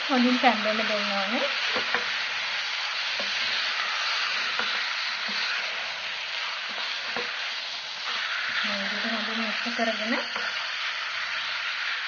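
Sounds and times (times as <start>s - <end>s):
chicken sizzling in a pot: 0.0s - 12.0s.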